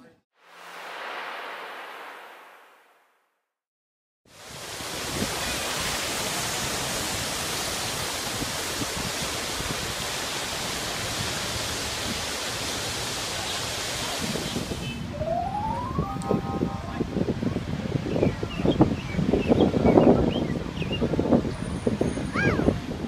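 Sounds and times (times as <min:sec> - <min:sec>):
fountain water splashing: 0:04.3 - 0:18.4.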